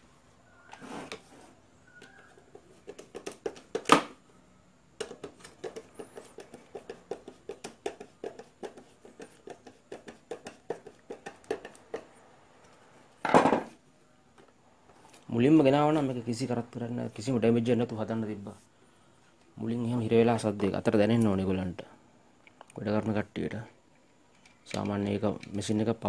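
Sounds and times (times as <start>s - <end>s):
screwdriver tapping and scraping: 2.0s - 3.9s, 5.0s - 12.8s.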